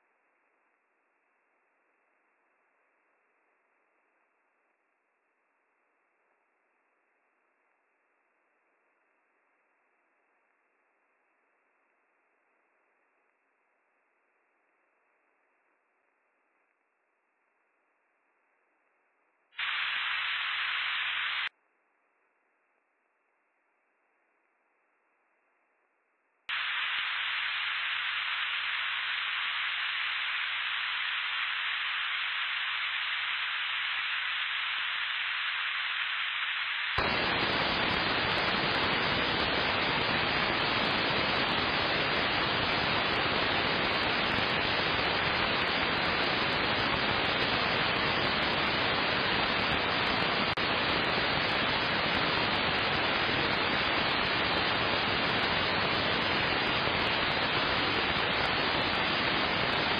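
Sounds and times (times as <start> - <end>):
faint hum: 0.0 - 59.9
radio static hiss: 19.6 - 21.5, 26.5 - 59.9.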